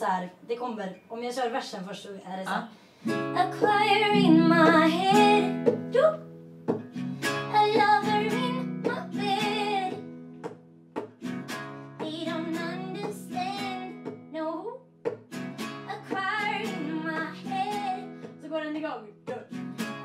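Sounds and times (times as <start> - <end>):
acoustic guitar strumming: 3.0 - 14.3, 15.0 - 20.0
woman singing: 3.2 - 6.2, 7.5 - 10.0, 12.0 - 14.8, 15.8 - 19.6.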